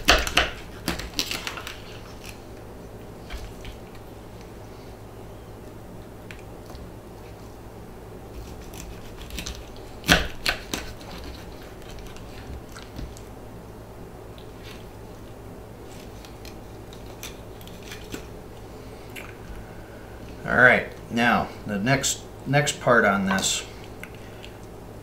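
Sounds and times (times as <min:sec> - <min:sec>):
knife crunching through fish bone: 0:00.0 - 0:02.4, 0:08.3 - 0:13.2, 0:15.9 - 0:18.3.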